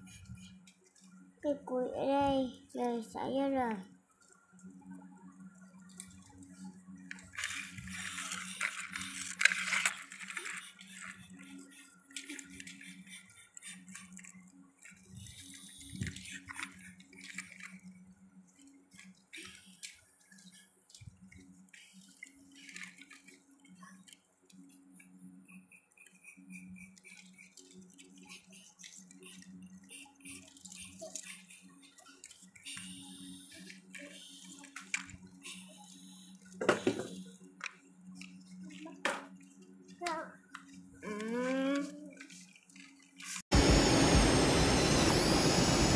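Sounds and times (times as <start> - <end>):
steady low hum: 0.0 - 45.9
low hum: 43.3 - 45.9.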